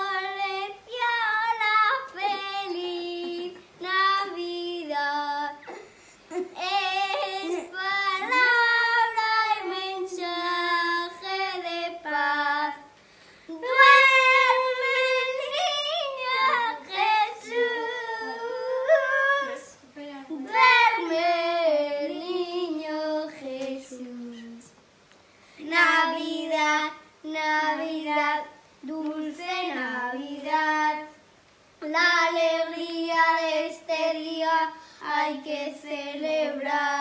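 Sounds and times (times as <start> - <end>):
boys singing unaccompanied: 0.0 - 24.7, 25.6 - 31.2, 31.8 - 37.0.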